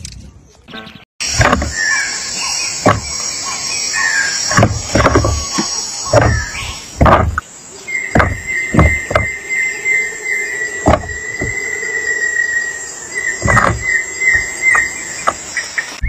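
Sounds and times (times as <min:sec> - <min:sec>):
nestlings squealing begging calls: 0:01.2 - 0:07.0, 0:07.6 - 0:16.0
dull thumps: 0:01.3 - 0:01.9, 0:02.8 - 0:03.3, 0:04.4 - 0:07.5, 0:08.1 - 0:09.4, 0:10.8 - 0:11.7, 0:13.4 - 0:15.5.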